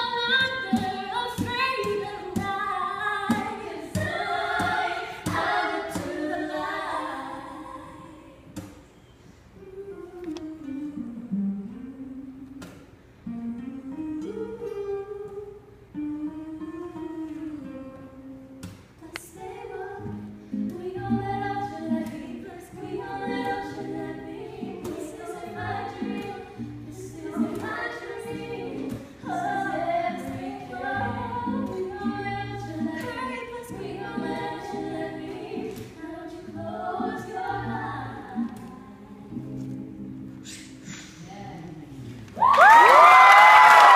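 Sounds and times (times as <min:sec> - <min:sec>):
several voices singing together: 0:00.0 - 0:08.7, 0:19.2 - 0:39.6
woman singing: 0:00.0 - 0:08.8, 0:09.6 - 0:12.8, 0:13.6 - 0:39.9
acoustic guitars: 0:00.0 - 0:42.5.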